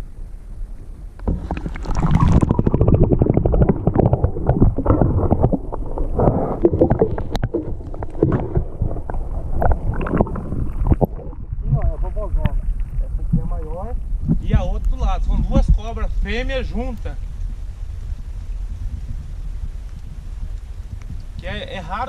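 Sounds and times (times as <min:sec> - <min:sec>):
underwater rumbling and gurgling: 0:00.0 - 0:21.8
water knocking around camera: 0:01.1 - 0:17.6.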